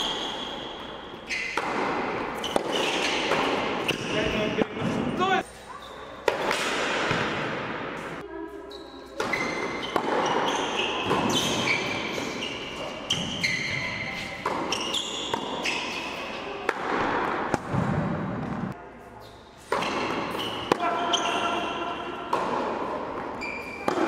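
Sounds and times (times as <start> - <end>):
shoe squeaks: 0.0 - 1.6, 2.4 - 4.5, 5.5 - 6.2, 8.4 - 16.6, 19.1 - 22.0, 23.3 - 24.0
tennis ball bouncing on hard court: 0.1 - 4.2, 6.2 - 8.1, 9.2 - 12.2, 13.1 - 16.0, 16.6 - 18.7, 22.2 - 24.0.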